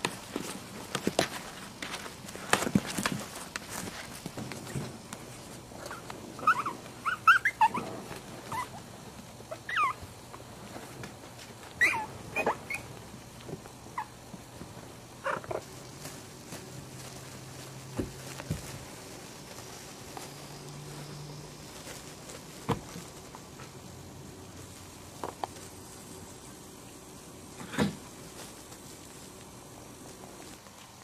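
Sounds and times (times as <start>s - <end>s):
steady low hum: 0.0s - 31.0s
puppies squeaking and yipping: 5.8s - 8.8s, 9.5s - 10.0s, 11.8s - 12.9s, 15.2s - 15.6s.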